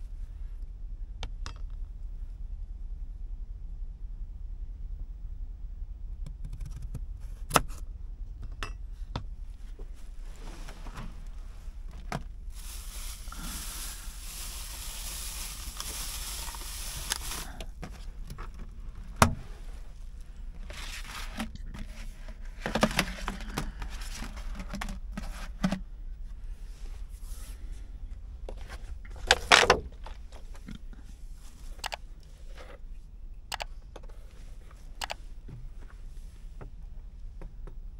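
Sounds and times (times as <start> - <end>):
steady low hum: 0.0 - 37.9
rustling hissing noise: 9.5 - 32.6.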